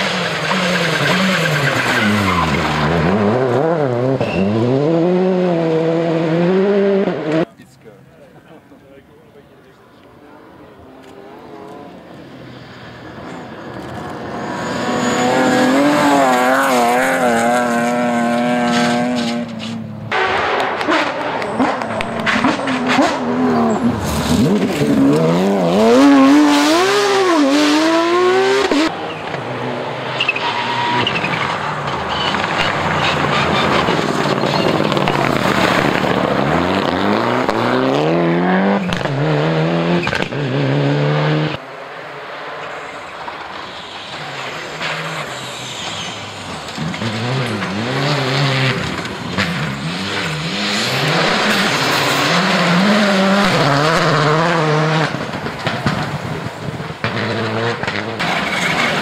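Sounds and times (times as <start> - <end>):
rally car engines revving: 0.0 - 7.7, 9.5 - 59.0.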